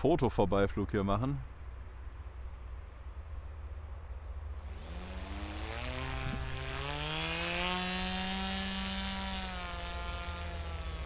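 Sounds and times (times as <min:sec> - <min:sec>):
model aircraft motor buzzing whine: 0:04.5 - 0:11.0.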